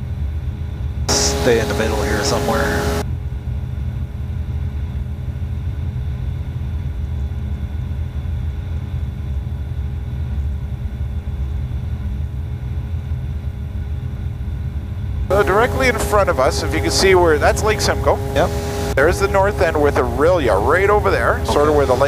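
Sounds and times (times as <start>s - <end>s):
aircraft engine and propeller drone: 0.0s - 22.0s
faint steady tones: 1.1s - 3.0s, 15.3s - 22.0s.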